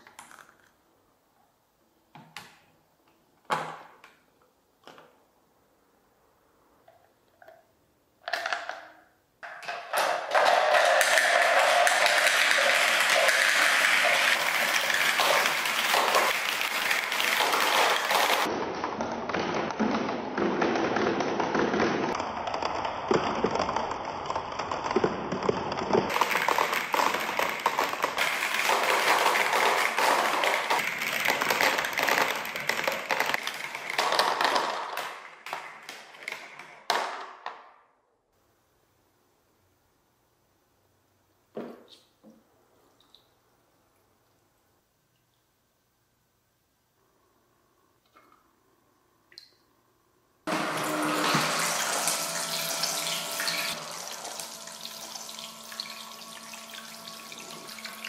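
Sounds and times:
plastic balls rattling down tracks: 0:08.3 - 0:37.7, 0:50.5 - 0:58.0.

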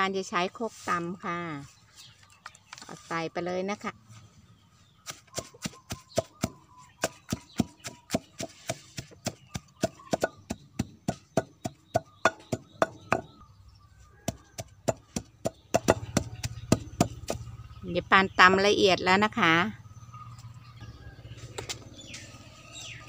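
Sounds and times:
wooden pestle pounding leaves: 0:05.0 - 0:13.4, 0:14.2 - 0:17.5.

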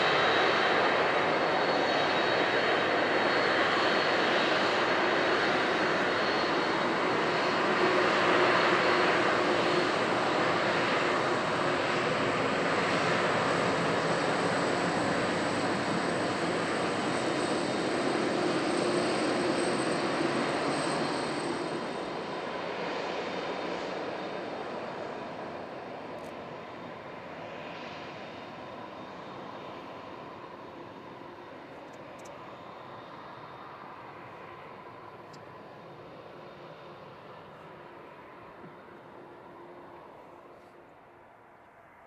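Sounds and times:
jet engines taxiing hum and whine: 0:00.0 - 0:42.0.

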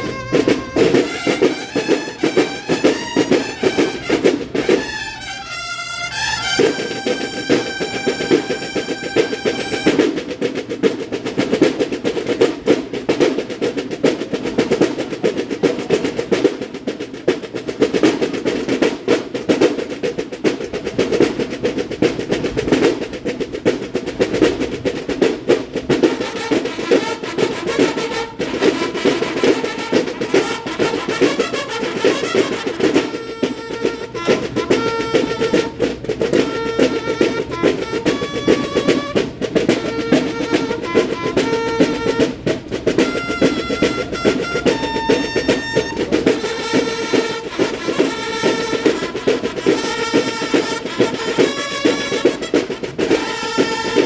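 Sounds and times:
bugle notes: 0:00.0 - 0:11.4, 0:25.8 - 0:54.0
snare drum rolls: 0:00.0 - 0:54.0.

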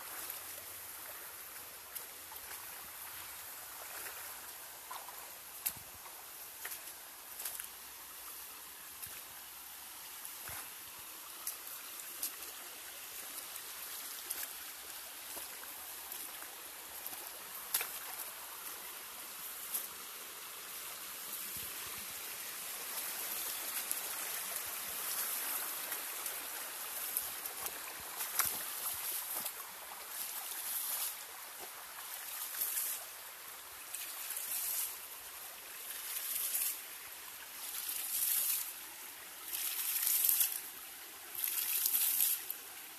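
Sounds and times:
creek water trickling over rocks: 0:00.0 - 0:42.9
water splashing: 0:41.3 - 0:42.6.

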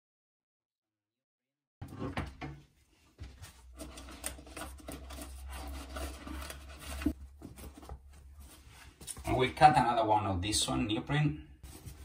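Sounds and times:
foam rubbing and scraping: 0:03.6 - 0:09.0.

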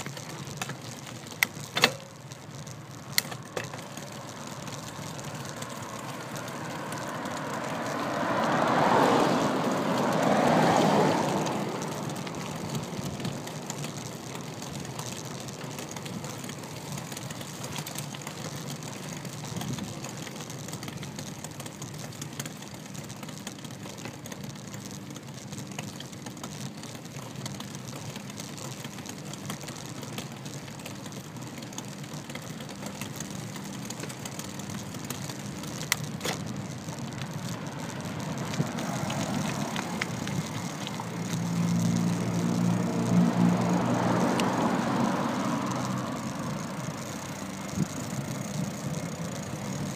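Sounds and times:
bicycle road and wind noise: 0:00.0 - 0:49.9
car passing close: 0:03.3 - 0:16.6, 0:34.6 - 0:49.9.

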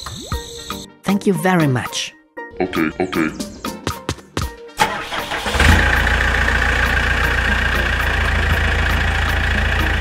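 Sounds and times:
small engine puttering: 0:04.8 - 0:10.0.

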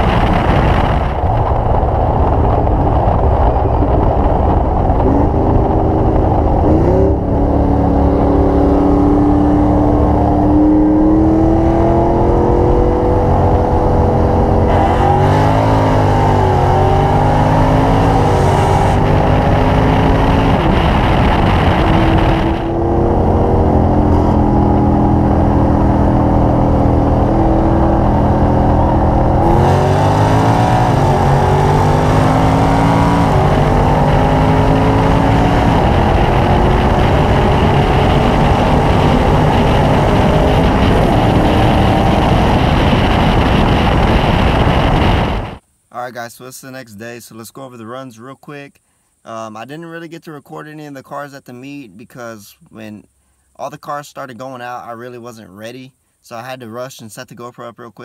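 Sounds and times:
car engine accelerating hard: 0:00.0 - 0:45.6.

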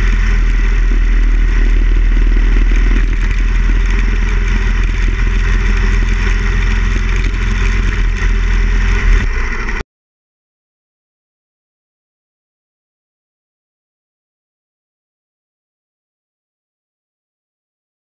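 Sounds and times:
motorcycle engine running: 0:00.0 - 0:09.8
wind rush: 0:00.0 - 0:09.8.

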